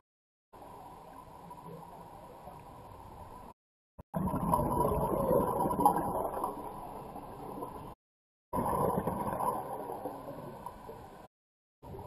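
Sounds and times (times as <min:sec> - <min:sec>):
underwater regulator bubbles gurgling: 0:04.2 - 0:08.0, 0:08.6 - 0:11.3.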